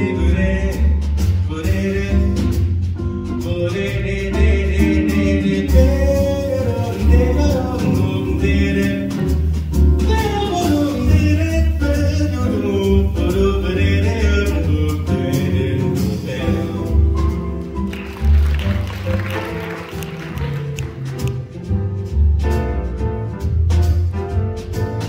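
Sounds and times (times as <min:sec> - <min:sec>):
bass: 0:00.0 - 0:25.0
drum kit: 0:00.0 - 0:25.0
piano: 0:00.0 - 0:25.0
vocal ensemble singing: 0:04.8 - 0:09.5, 0:13.4 - 0:17.2.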